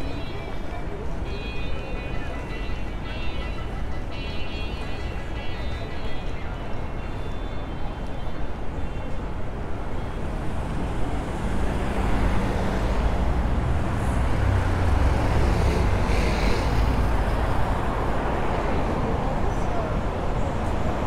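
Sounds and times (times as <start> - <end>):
cars driving past: 10.3 - 19.8.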